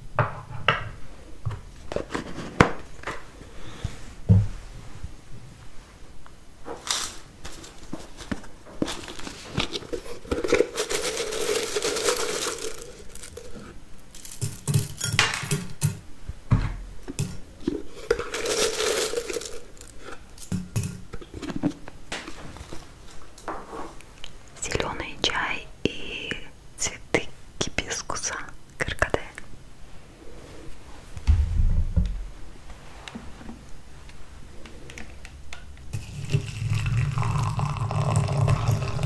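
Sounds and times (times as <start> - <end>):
foil seal tearing and crinkling: 8.8 - 13.6, 18.1 - 20.0
tin and lid clinking: 9.6 - 13.6, 14.2 - 16.0, 18.0 - 21.0.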